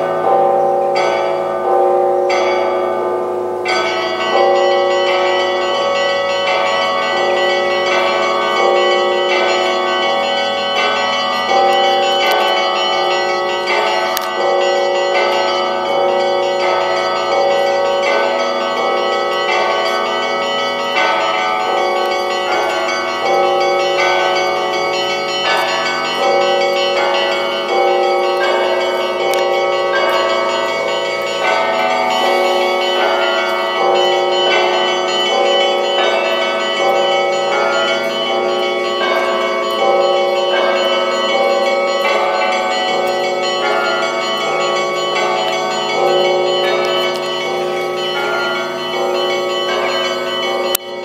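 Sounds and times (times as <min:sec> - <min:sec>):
church bells pealing: 0:00.0 - 0:51.0.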